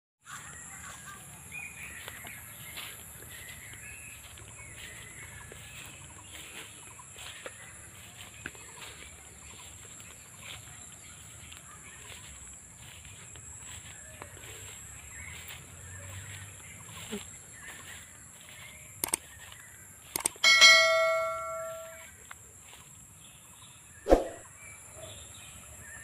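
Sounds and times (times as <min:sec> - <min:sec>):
birds calling: 0:00.2 - 0:22.1
light clicks: 0:19.0 - 0:19.3, 0:20.1 - 0:20.4
short bird chirps: 0:19.0 - 0:20.4, 0:24.0 - 0:24.5.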